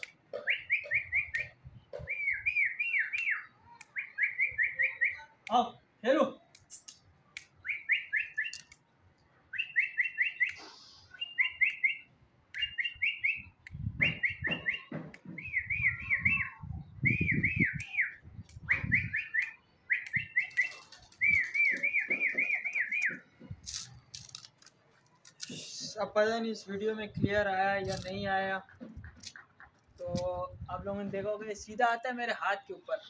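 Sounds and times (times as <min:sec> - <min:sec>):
man whistling: 0:00.4 - 0:03.4, 0:12.6 - 0:23.2.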